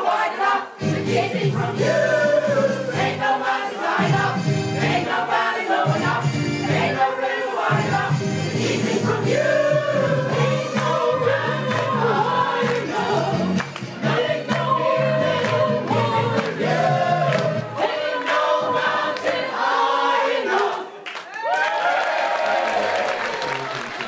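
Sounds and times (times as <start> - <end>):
choir singing: 0.0 - 21.0.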